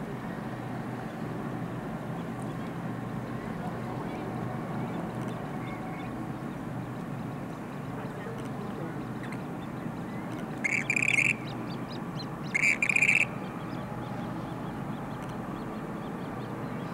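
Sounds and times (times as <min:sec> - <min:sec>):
grebe calling: 0:10.6 - 0:13.7.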